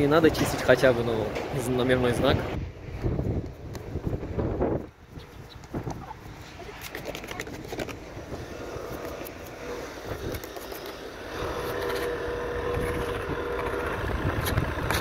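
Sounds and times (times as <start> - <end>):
scuffs and clicks: 4.8 - 8.2
car engine running: 8.7 - 15.0.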